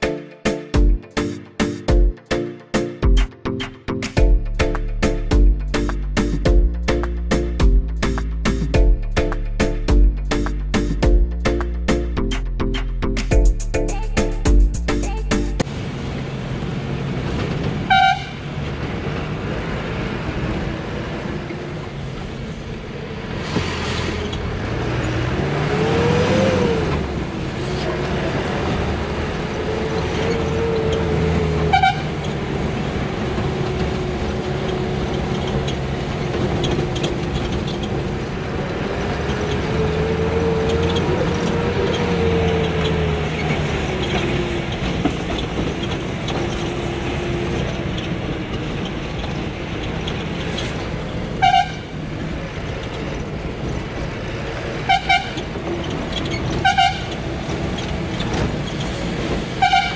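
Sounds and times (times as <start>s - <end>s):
bus engine revving: 3.2s - 59.9s
horn toots: 30.6s - 32.3s, 51.4s - 51.9s, 54.9s - 55.4s, 56.6s - 57.2s, 59.6s - 59.9s.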